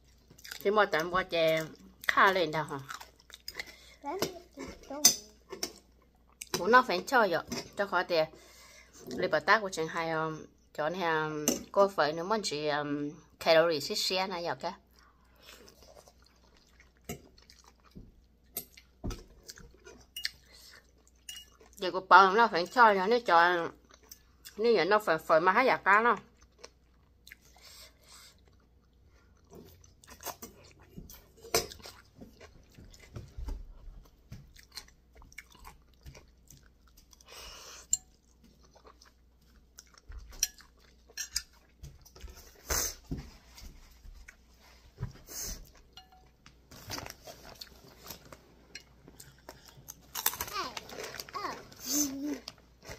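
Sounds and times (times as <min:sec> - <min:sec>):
person chewing noodles: 0:00.0 - 0:00.6, 0:02.8 - 0:03.8, 0:15.0 - 0:21.8, 0:26.4 - 0:33.3, 0:34.0 - 0:42.6, 0:47.4 - 0:51.4
metal spoon clinking on bowl: 0:21.3 - 0:21.6, 0:45.9 - 0:46.3.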